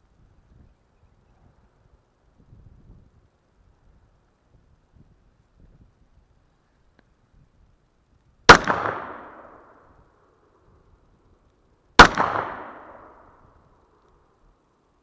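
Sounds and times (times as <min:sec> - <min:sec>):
pistol shots with echo: 0:08.5 - 0:09.8, 0:12.0 - 0:13.3.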